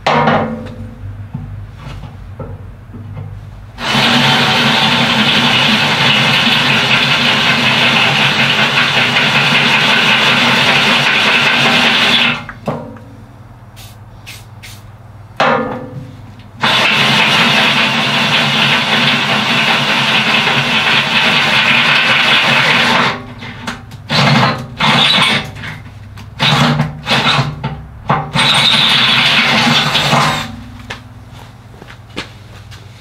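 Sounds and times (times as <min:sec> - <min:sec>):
power drill boring into steel: 0:03.8 - 0:12.4, 0:28.4 - 0:30.5.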